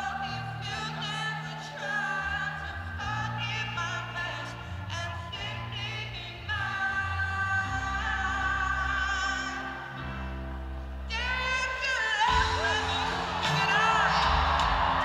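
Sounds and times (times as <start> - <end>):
live band playing: 8.7 - 15.0
audience cheering: 12.2 - 15.0.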